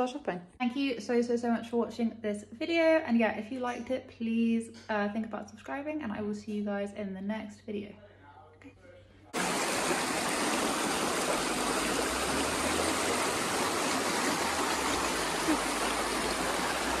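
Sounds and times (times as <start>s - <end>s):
stream rushing over rocks: 9.4s - 17.0s.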